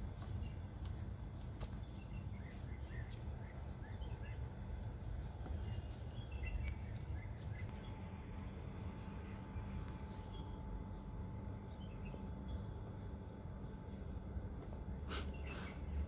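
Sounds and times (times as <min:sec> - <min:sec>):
steady low rumble: 0:02.3 - 0:16.0
faint bird chirps: 0:14.6 - 0:16.0.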